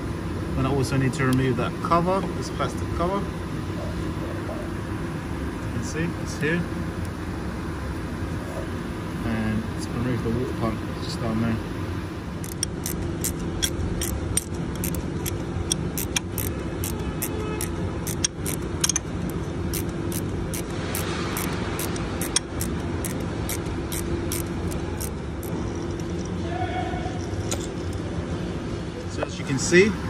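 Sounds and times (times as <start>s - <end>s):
steady hum: 0.0s - 30.0s
ratchet wrench clicking: 12.4s - 26.4s.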